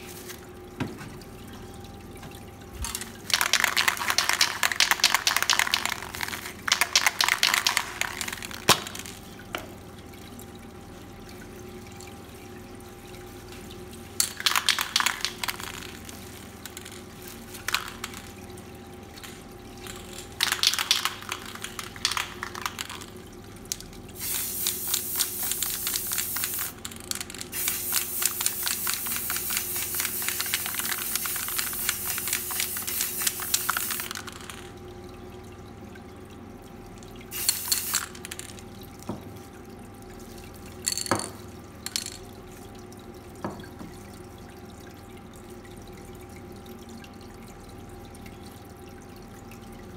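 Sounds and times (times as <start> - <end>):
aerosol spray can hissing: 24.2 - 26.7, 27.6 - 34.0.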